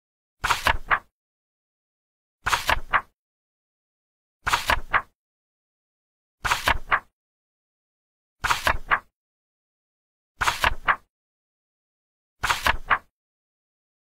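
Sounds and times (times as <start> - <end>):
page turning flip: 0.4 - 1.1, 2.5 - 3.1, 4.5 - 5.1, 6.4 - 7.1, 8.4 - 9.1, 10.4 - 11.0, 12.4 - 13.1.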